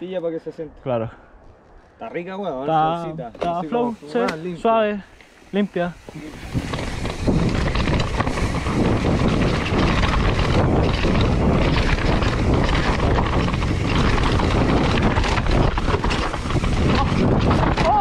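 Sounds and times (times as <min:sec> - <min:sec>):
tyres on loose dirt: 0:03.3 - 0:18.0
wind rush on microphone: 0:04.6 - 0:18.0
bike clattering over bumps: 0:06.0 - 0:18.0.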